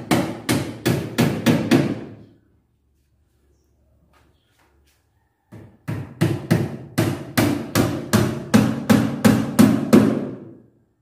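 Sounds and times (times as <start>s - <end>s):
hammer driving nails into wood: 0.0s - 2.1s, 5.9s - 10.5s.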